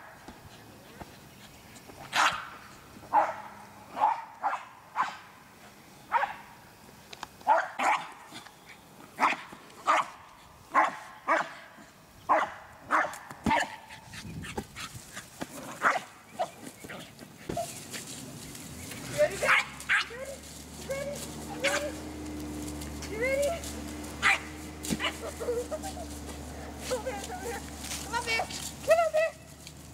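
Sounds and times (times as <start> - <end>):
dog barking: 2.1 - 2.5, 3.1 - 5.3, 6.1 - 6.5, 7.5 - 8.1, 9.2 - 11.7, 12.3 - 13.9, 15.8 - 16.6, 19.4 - 20.3, 20.9 - 22.0, 24.2 - 25.4.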